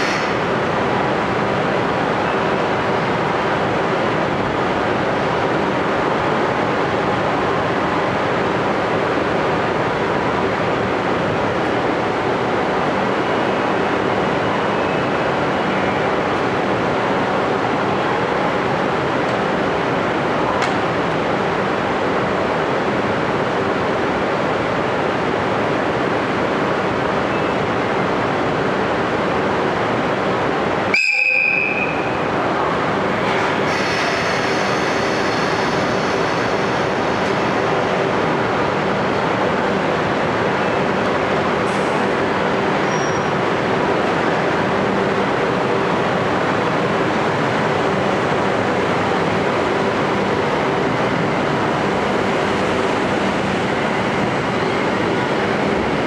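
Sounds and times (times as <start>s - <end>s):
electric locomotive humming and hissing: 0.0s - 56.0s
short high train whistle: 30.9s - 32.1s.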